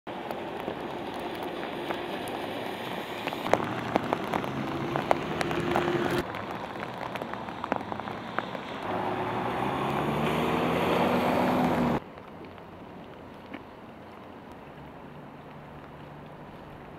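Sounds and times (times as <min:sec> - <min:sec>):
steady rain: 0:00.1 - 0:16.9
water splashing from tyres: 0:00.1 - 0:16.9
vehicle engine speeding up: 0:03.5 - 0:06.4, 0:07.2 - 0:12.0.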